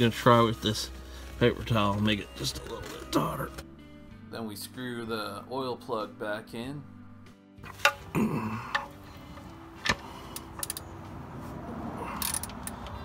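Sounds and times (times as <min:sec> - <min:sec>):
metal clicks of drain plug: 0:08.7 - 0:09.0.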